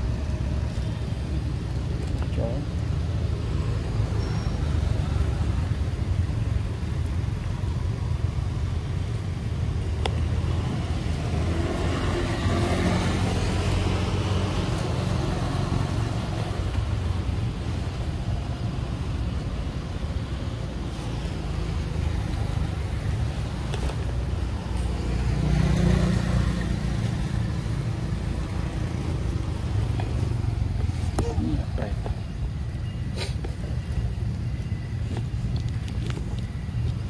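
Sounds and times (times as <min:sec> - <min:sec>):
motor vehicle passing: 0:10.2 - 0:34.1.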